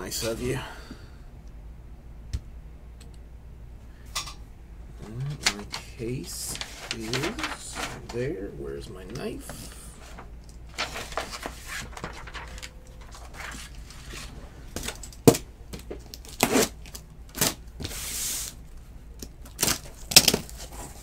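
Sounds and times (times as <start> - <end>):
packing tape tearing: 16.1 - 18.6, 19.4 - 20.6.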